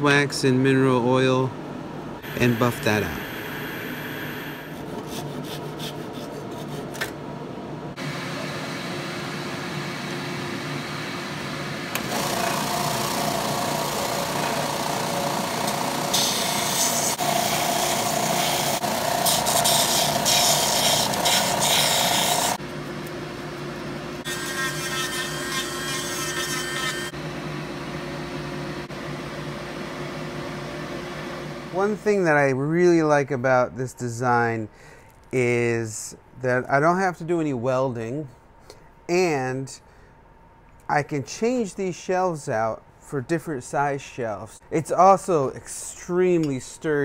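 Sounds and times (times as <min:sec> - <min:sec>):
high-pitched rotary tool: 0:02.2 - 0:04.7, 0:12.0 - 0:22.6, 0:24.2 - 0:27.1
wood lathe spinning: 0:12.0 - 0:22.6, 0:24.2 - 0:27.1
sanding belt grinding wood: 0:15.9 - 0:22.6, 0:24.3 - 0:27.1.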